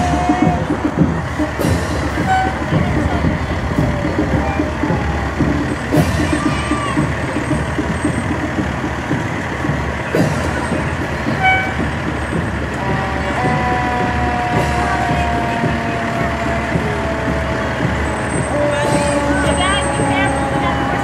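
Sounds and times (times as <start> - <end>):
vehicle engines rumbling: 0.0 - 21.0
short horn toot: 11.4 - 11.8.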